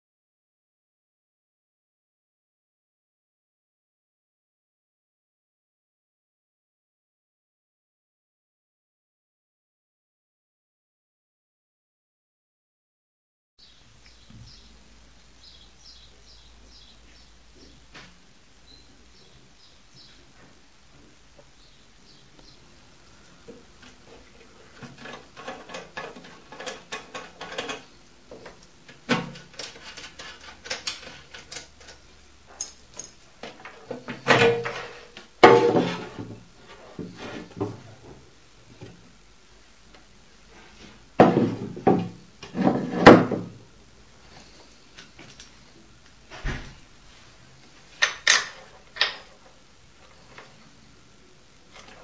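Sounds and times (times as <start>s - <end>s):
metal tools clicking and clinking: 29.6s - 33.2s
metal knocks and clanks: 34.2s - 36.4s.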